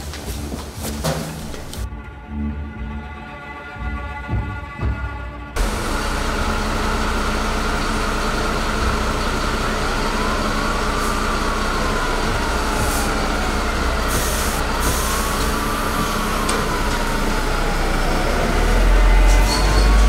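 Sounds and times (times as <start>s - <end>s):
diesel engine running: 5.6s - 20.0s
siren wailing: 5.6s - 20.0s.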